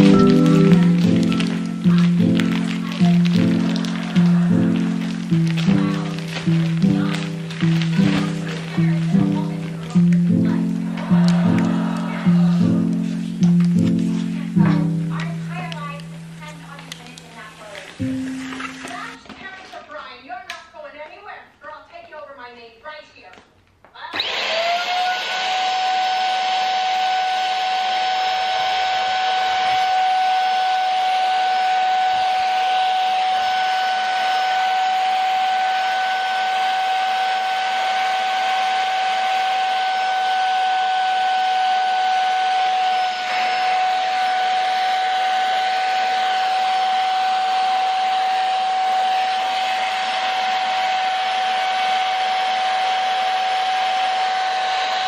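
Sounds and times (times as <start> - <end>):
handheld vacuum cleaner whine: 24.1 - 55.0.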